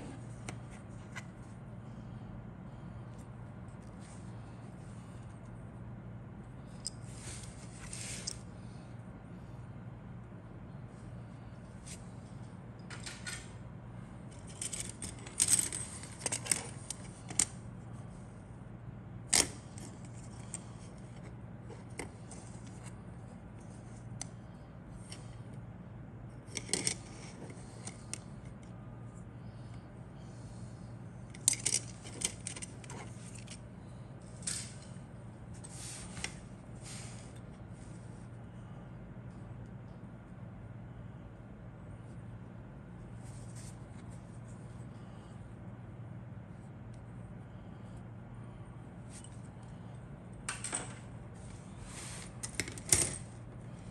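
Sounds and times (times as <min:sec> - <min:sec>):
low steady hum: 0:00.0 - 0:53.9
plastic parts clicking and rattling: 0:14.4 - 0:17.5, 0:31.3 - 0:33.6.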